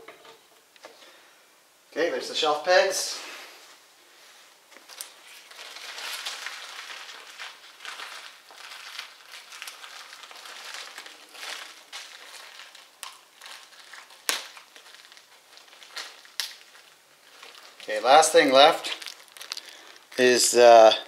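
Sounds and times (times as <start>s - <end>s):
plastic bag crinkling: 4.7s - 21.0s.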